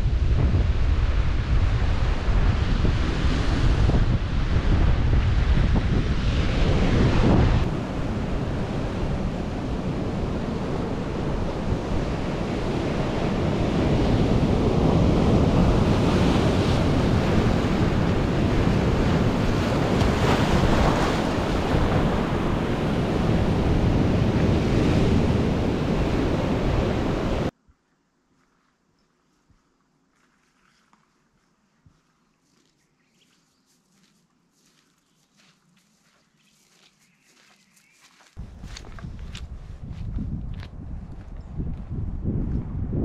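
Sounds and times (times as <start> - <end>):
wind buffeting microphone: 0.0 - 27.5, 38.4 - 43.0
sea waves crashing on rocks: 6.7 - 27.5.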